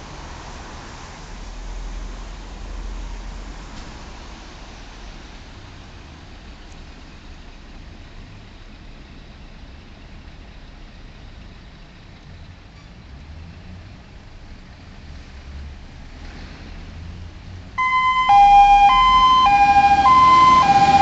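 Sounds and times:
diesel engine idling: 0:17.8 - 0:21.0.

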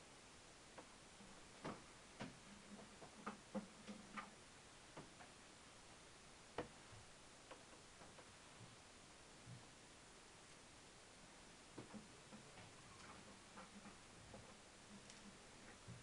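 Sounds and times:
small clicks and taps: 0:01.6 - 0:05.4, 0:11.8 - 0:16.0.

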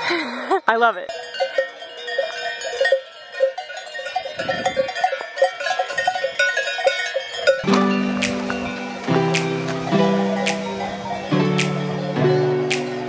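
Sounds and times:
cowbells clanking: 0:00.6 - 0:13.0
music with guitar strumming: 0:07.6 - 0:13.0.

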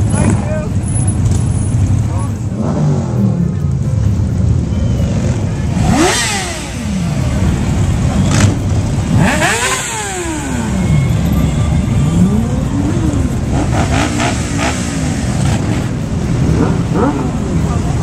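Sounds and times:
motorcycles revving past: 0:05.0 - 0:11.3, 0:12.1 - 0:18.0.

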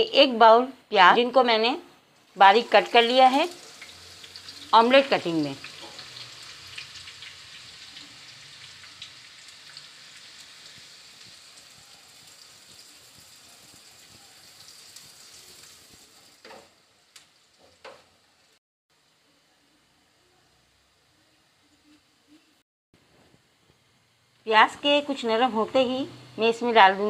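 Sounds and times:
onions sizzling in hot oil: 0:02.2 - 0:19.2, 0:24.6 - 0:27.0.

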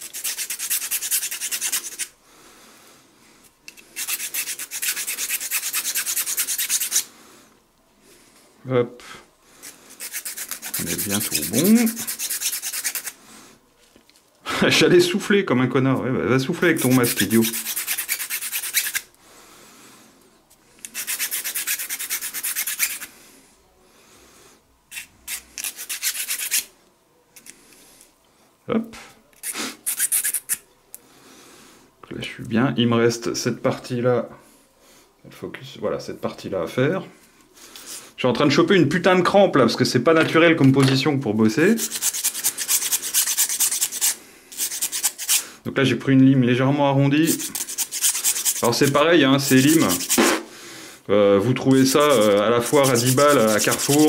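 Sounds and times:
hand file scraping fibreglass: 0:00.0 - 0:02.1, 0:03.7 - 0:07.1, 0:09.6 - 0:13.2, 0:16.7 - 0:19.1, 0:20.8 - 0:23.1, 0:24.9 - 0:26.7, 0:29.4 - 0:30.6, 0:41.7 - 0:45.4, 0:47.2 - 0:50.4, 0:51.8 - 0:54.0.

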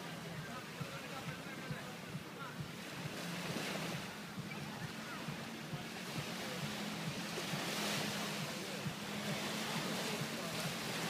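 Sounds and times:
waves washing onto shore: 0:00.0 - 0:11.0.

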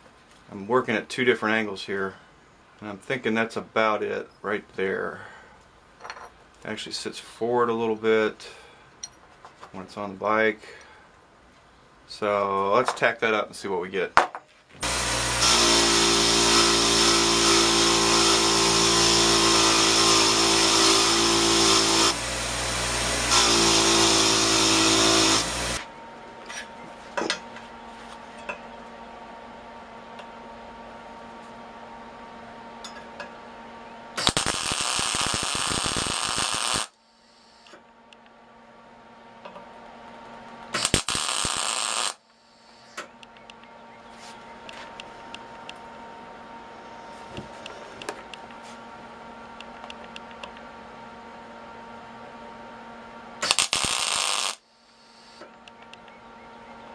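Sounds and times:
bench grinder grinding steel: 0:14.8 - 0:25.8, 0:34.2 - 0:36.9, 0:40.8 - 0:42.2, 0:53.4 - 0:54.6
welding tacks: 0:34.2 - 0:36.9, 0:40.8 - 0:42.2, 0:53.4 - 0:54.6.

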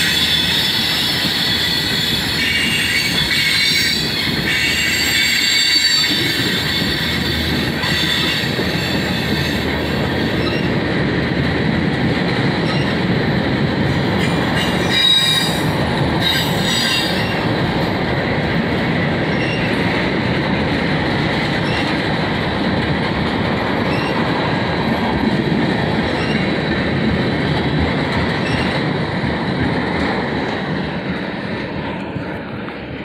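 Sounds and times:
high wheel squeal: 0:00.0 - 0:10.7, 0:14.2 - 0:17.5, 0:19.3 - 0:19.8, 0:23.9 - 0:24.2, 0:26.2 - 0:26.5
train wheels rumbling on rail: 0:00.0 - 0:33.0.

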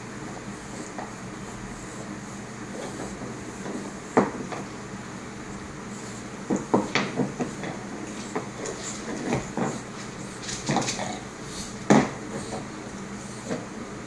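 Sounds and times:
dog gnawing antler: 0:06.2 - 0:13.7.

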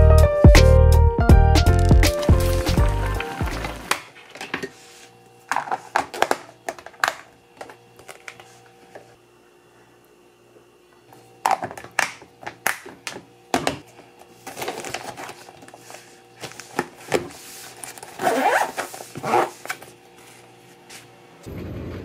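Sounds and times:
lunch bag rustling: 0:01.7 - 0:04.3
zipper scraping shut: 0:18.1 - 0:19.8.

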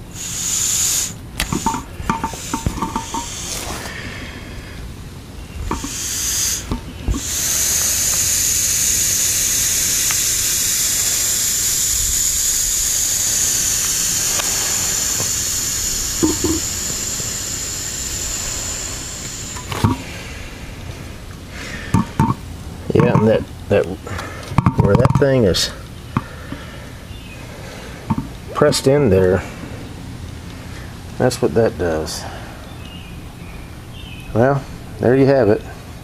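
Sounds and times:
compressed air hissing: 0:00.0 - 0:23.1.

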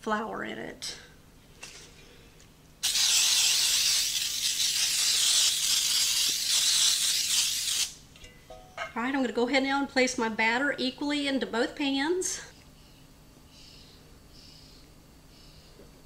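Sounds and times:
aerosol can spraying hiss: 0:02.8 - 0:08.0.

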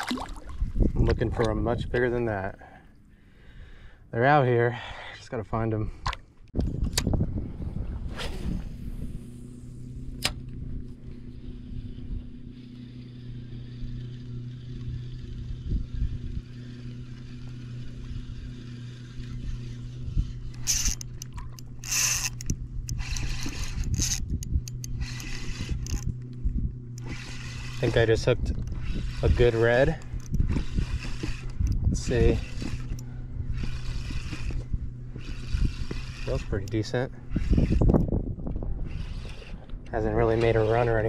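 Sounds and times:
water splashing: 0:00.0 - 0:00.8
low hum: 0:00.0 - 0:41.0
sharp click: 0:10.2 - 0:10.5.

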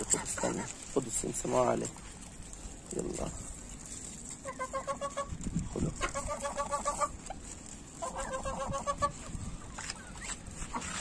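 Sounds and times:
chickens clucking: 0:00.0 - 0:01.4, 0:04.1 - 0:11.0.

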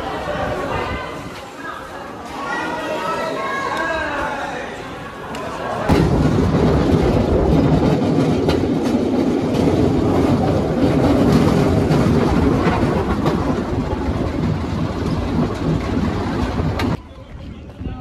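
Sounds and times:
rail car wheels rumbling: 0:05.8 - 0:18.0
wheels clacking over rail joints: 0:05.9 - 0:17.0.

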